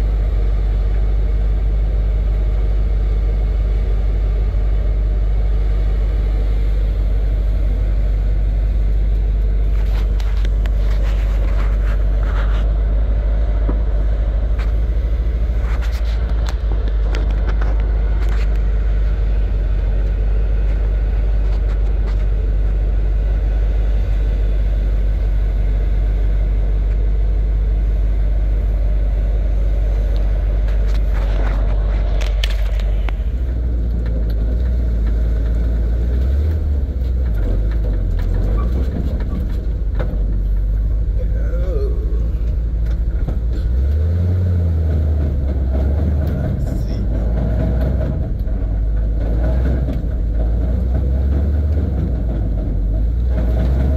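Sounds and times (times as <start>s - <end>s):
heavy engines idling: 0.0s - 53.9s.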